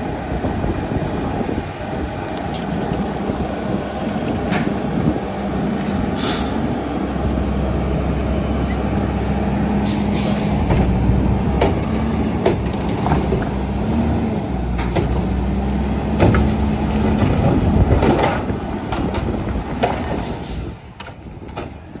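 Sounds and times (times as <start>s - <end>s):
diesel engine running: 0.0s - 22.0s
trash cart knocking and clattering: 12.4s - 13.6s, 14.7s - 15.4s, 16.1s - 22.0s.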